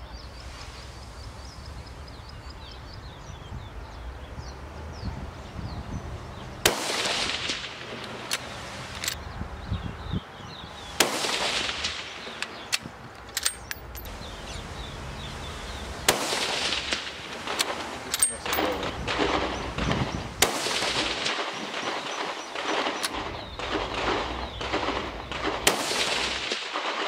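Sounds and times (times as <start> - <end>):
rifle shots with echo: 6.6 - 8.3, 11.0 - 12.7, 16.1 - 27.0.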